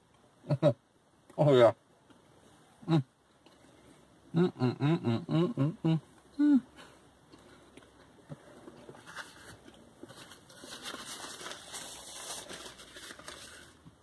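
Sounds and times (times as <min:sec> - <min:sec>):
paper napkin rustling: 0:09.0 - 0:13.8.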